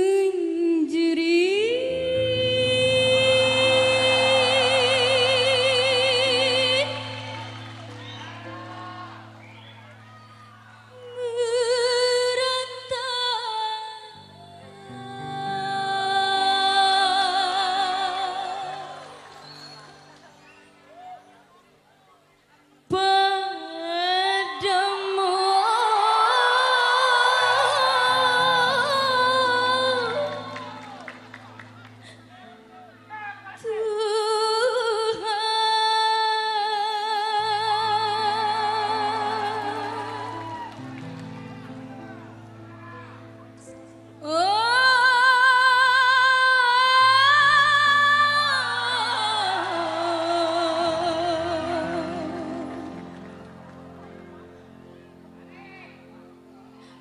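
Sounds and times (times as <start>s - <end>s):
woman singing with vibrato: 0.0s - 7.6s, 10.9s - 19.2s, 22.9s - 30.8s, 33.6s - 40.7s, 44.2s - 53.0s.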